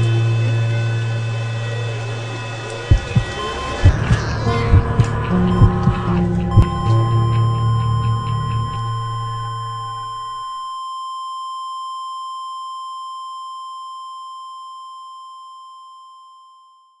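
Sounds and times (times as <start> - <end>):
low synth drone: 0.0 - 10.5
synthesized tones: 0.1 - 10.6
high steady tone: 2.3 - 10.7.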